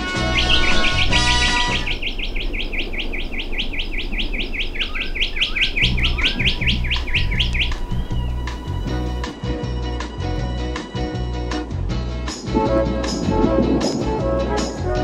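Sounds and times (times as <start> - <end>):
bird chirping rapidly: 0.0 - 9.3
lower bird calls: 0.0 - 9.3.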